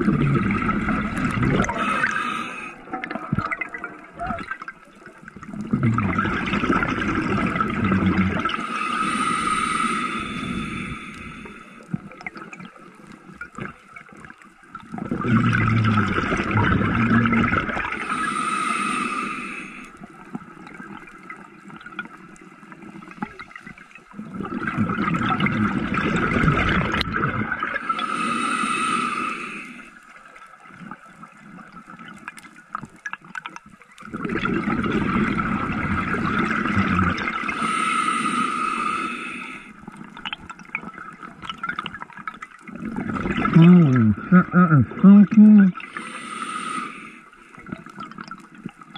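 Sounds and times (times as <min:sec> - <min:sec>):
diver exhaling bubbles: 0:00.0 - 0:04.7, 0:05.4 - 0:12.4, 0:14.9 - 0:19.8, 0:24.2 - 0:29.8, 0:34.1 - 0:40.2, 0:42.7 - 0:48.4
diver inhaling through regulator: 0:01.6 - 0:02.9, 0:08.5 - 0:11.9, 0:18.0 - 0:20.0, 0:27.8 - 0:30.0, 0:37.1 - 0:39.8, 0:45.7 - 0:47.6.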